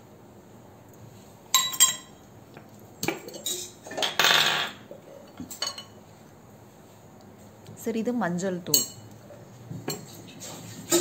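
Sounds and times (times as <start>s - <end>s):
steel kitchenware clinking: 1.5s - 2.2s, 3.0s - 6.0s, 8.7s - 9.1s.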